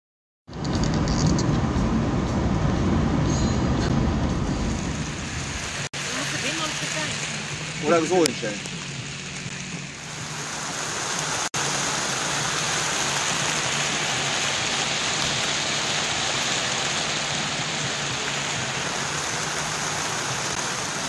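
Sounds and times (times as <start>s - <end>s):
steady rain falling: 4.5s - 21.0s.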